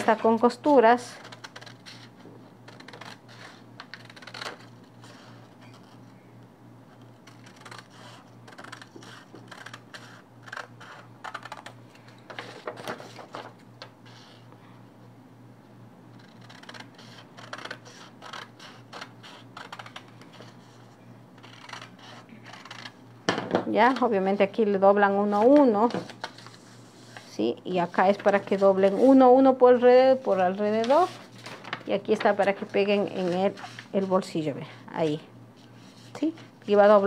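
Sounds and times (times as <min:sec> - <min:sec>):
scissors cutting paper: 0:00.0 - 0:02.1, 0:02.7 - 0:05.3, 0:07.2 - 0:11.8, 0:16.2 - 0:20.6, 0:21.4 - 0:23.0.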